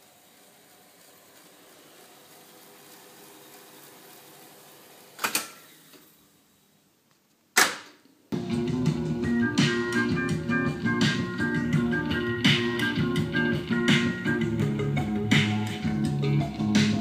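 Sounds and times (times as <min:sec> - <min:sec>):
tape deck winding whir: 0:00.0 - 0:06.4, 0:08.4 - 0:17.0
tape deck mechanical clunk: 0:07.6 - 0:08.0.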